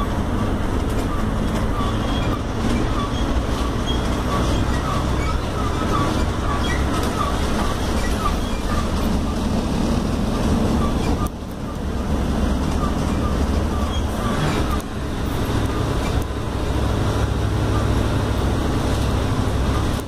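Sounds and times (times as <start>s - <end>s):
bus engine and road rumble: 0.0s - 20.0s
small repeating squeak: 1.0s - 9.4s, 10.8s - 11.8s, 12.7s - 14.9s.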